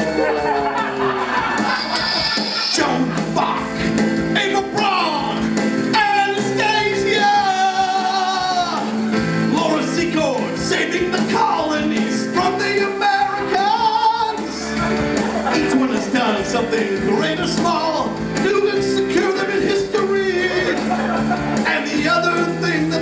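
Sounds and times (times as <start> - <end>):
rock backing track: 0.0 - 23.0
man singing into microphone: 4.3 - 14.8, 15.5 - 20.9, 21.6 - 23.0.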